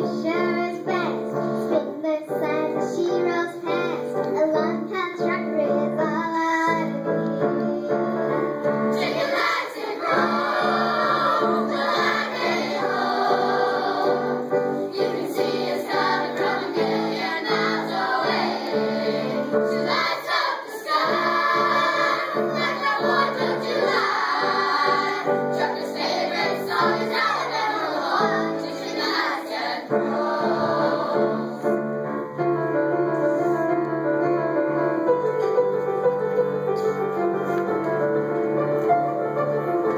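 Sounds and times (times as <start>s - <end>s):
instrumental accompaniment: 0.0s - 39.9s
girls singing into microphone: 6.2s - 31.8s.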